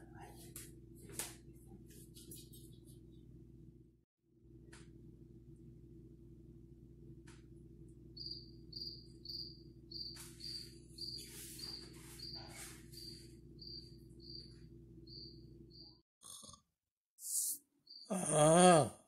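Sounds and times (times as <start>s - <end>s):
low room hum: 0.0s - 16.0s
recorded cricket chirping: 8.1s - 16.0s, 17.3s - 18.2s
rustling noise: 11.1s - 13.1s.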